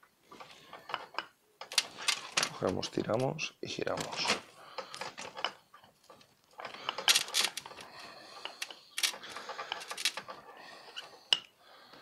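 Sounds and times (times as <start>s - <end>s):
scraping rasps and clicks: 3.9s - 11.5s
pliers twisting wire: 6.9s - 7.8s, 8.6s - 10.3s.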